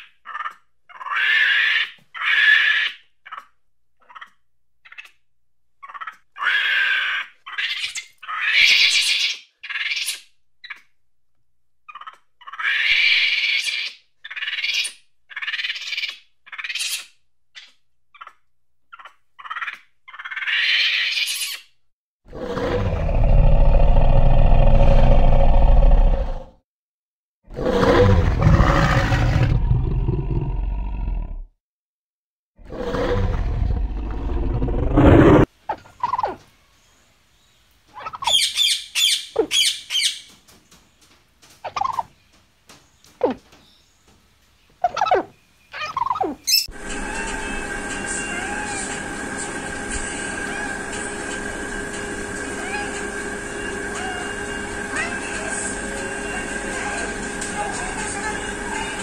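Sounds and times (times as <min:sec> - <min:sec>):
high animal calls and squeals: 0:00.0 - 0:05.2, 0:05.8 - 0:10.9, 0:11.9 - 0:21.7, 0:32.7 - 0:36.5, 0:37.9 - 0:40.3, 0:44.8 - 0:59.0
deep animal roar: 0:22.3 - 0:26.6, 0:27.5 - 0:31.5, 0:32.6 - 0:35.5.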